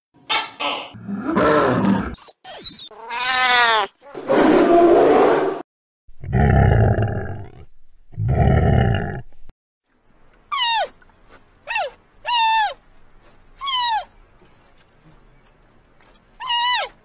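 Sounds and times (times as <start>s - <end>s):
animal growl: 1.0s - 2.2s, 6.2s - 9.4s
wavering cat-like call: 2.9s - 4.2s, 13.6s - 14.1s.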